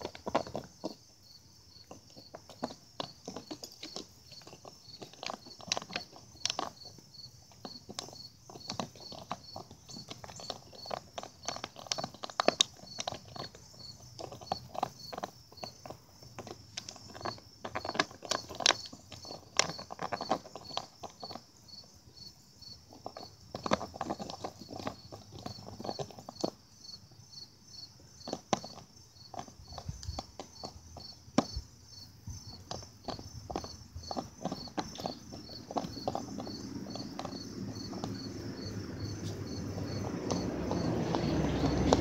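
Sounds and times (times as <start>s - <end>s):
puppy chewing plastic bottle: 0.0s - 1.1s, 1.7s - 21.5s, 22.8s - 26.6s, 32.5s - 42.0s.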